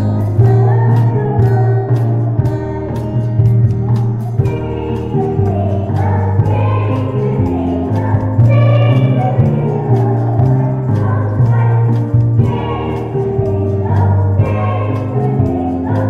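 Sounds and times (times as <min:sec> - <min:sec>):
instrumental accompaniment: 0:00.0 - 0:16.0
children singing: 0:04.2 - 0:16.0.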